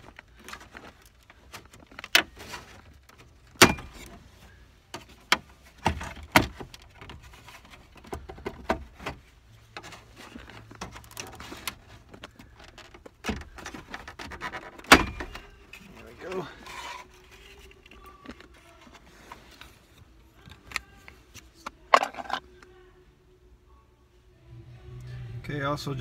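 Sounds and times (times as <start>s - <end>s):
plastic rattling: 0.0s - 4.2s, 5.0s - 19.6s, 21.6s - 22.5s.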